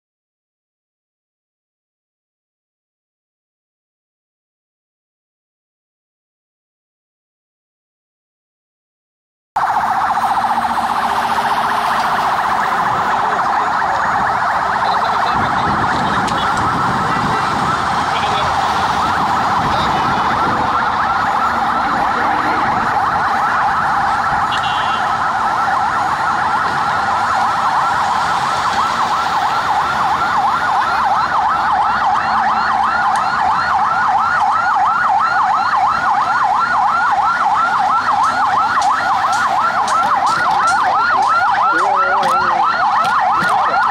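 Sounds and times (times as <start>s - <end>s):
police sirens wailing and yelping: 9.6s - 43.9s.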